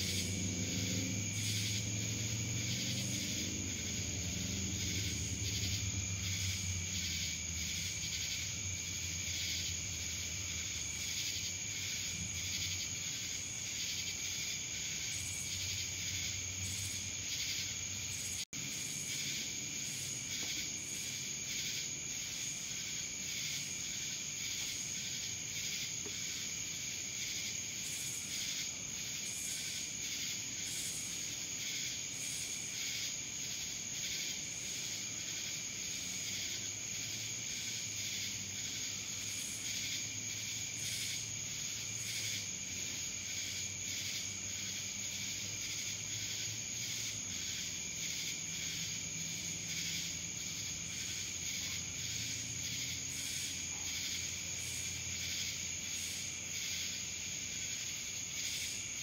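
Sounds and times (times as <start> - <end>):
insects trilling: 0.0 - 59.0.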